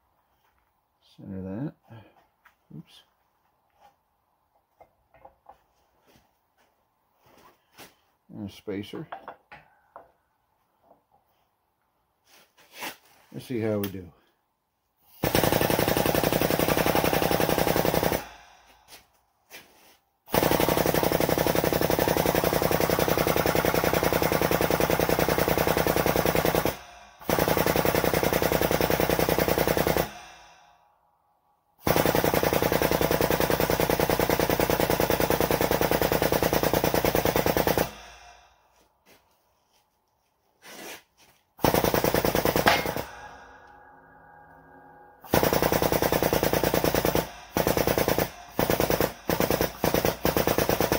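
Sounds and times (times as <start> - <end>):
sharp crack: 42.6 - 43.8.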